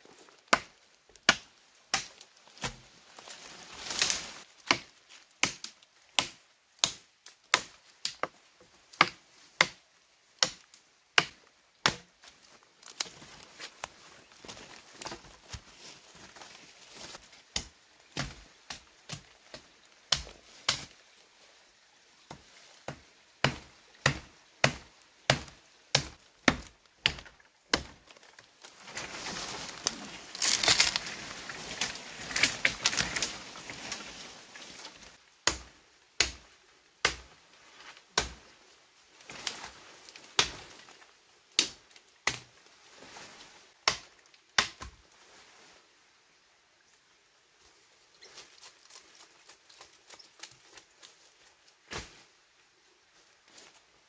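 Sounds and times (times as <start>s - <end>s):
wood being chopped: 0.4s - 2.8s, 4.6s - 8.3s, 9.0s - 9.8s, 10.4s - 12.1s, 17.5s - 20.9s, 22.9s - 28.0s, 29.8s - 33.4s, 35.4s - 36.4s, 37.0s - 37.3s, 38.2s - 38.4s, 40.4s - 40.6s, 41.6s - 42.5s, 43.8s - 45.0s
crackling and rustling: 27.3s - 35.2s.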